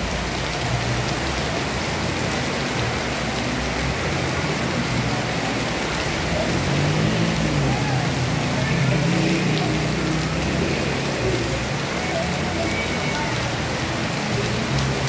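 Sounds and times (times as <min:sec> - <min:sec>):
heavy rain on flooded street: 0:00.0 - 0:15.0.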